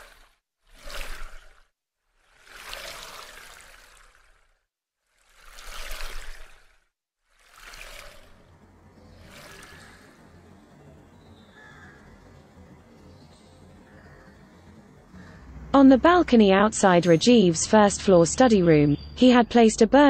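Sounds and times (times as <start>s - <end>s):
rushing water-like noise: 2.3s - 4.4s, 5.3s - 6.8s, 7.4s - 8.6s, 9.2s - 10.1s
low hum: 7.8s - 20.0s
faint bird calls: 9.0s - 15.7s.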